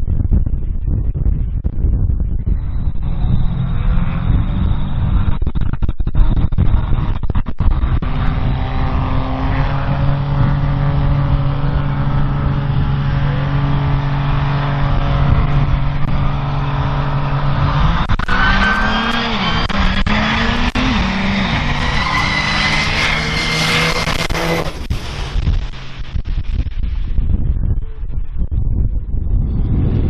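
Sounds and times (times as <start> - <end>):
truck engine running at high revs: 0.0 - 30.0
tires squealing: 8.0 - 25.8.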